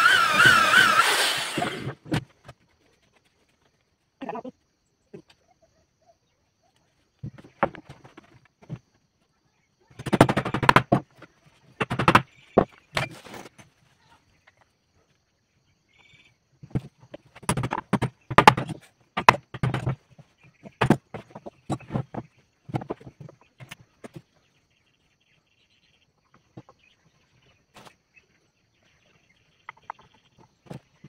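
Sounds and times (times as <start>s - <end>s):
wood and tools clattering on workbench: 7.2s - 8.9s, 10.0s - 13.8s, 16.6s - 24.3s.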